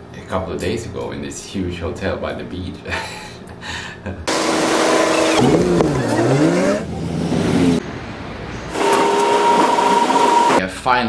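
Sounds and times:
bus engine revving: 0:04.3 - 0:10.6
street traffic: 0:04.8 - 0:10.6.

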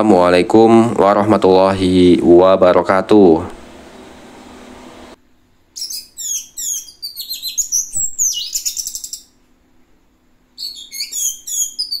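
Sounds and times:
thrush singing high chirps: 0:05.8 - 0:09.4, 0:10.6 - 0:12.0.

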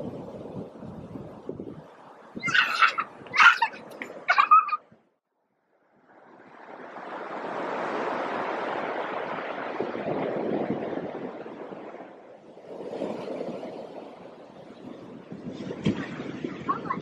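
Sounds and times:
ocean surf washing on beach: 0:06.0 - 0:17.0.

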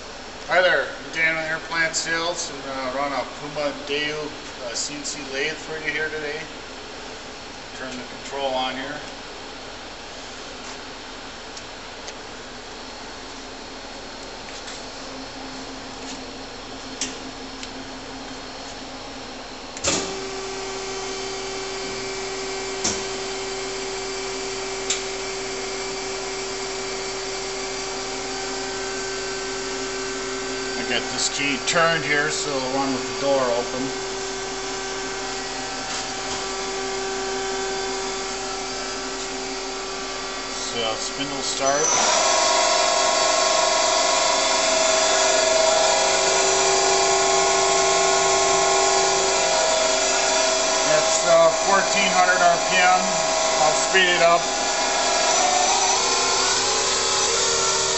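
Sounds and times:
machine hum with steady tone: 0:00.0 - 0:57.9
lathe spindle whine: 0:19.9 - 0:57.9.

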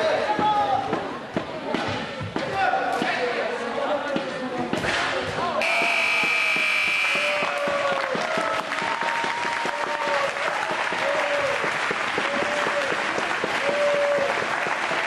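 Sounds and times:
crowd applauding: 0:05.6 - 0:15.0.

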